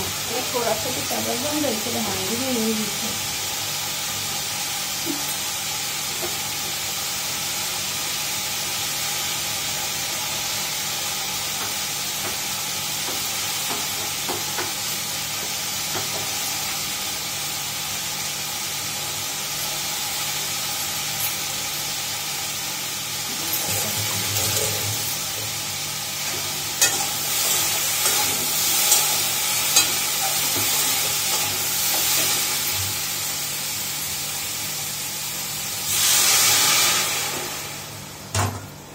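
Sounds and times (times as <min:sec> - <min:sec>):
food sizzling in a pan: 0:00.0 - 0:38.9
metal utensils clinking: 0:23.4 - 0:25.4.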